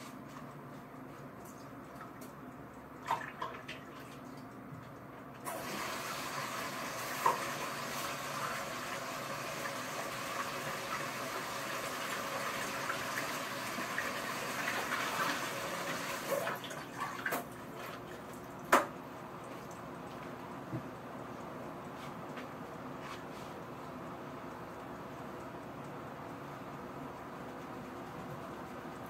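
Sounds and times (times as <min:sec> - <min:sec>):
water running from a tap: 0:05.5 - 0:18.0.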